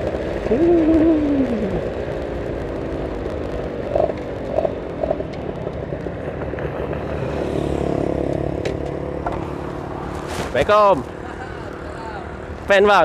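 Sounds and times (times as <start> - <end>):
motorcycle engine and exhaust: 0.0 - 13.0.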